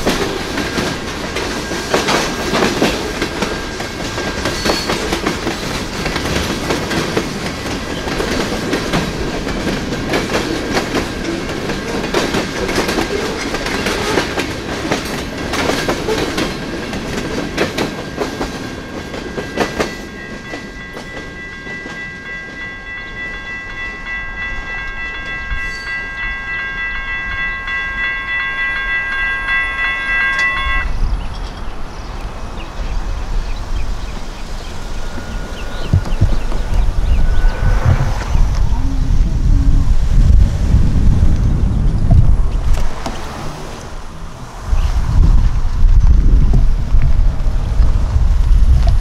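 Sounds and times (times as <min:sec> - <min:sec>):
train wheels clattering over rails: 0:00.0 - 0:23.6, 0:31.2 - 0:38.4
crossing bells ringing: 0:00.0 - 0:38.3
wind rumble on microphone: 0:30.8 - 0:43.3, 0:44.0 - 0:49.0.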